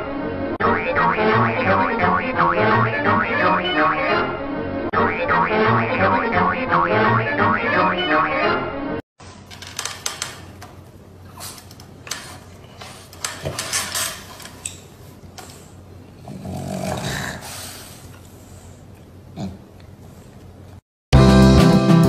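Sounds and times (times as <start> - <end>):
clicks and knocks: 9.5 - 10.8
dog snoring: 16.2 - 17.8.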